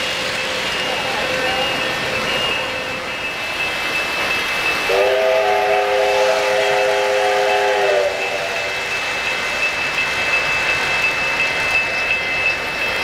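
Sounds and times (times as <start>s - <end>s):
model train chime: 0.0s - 13.0s
thin high tone: 0.2s - 5.2s.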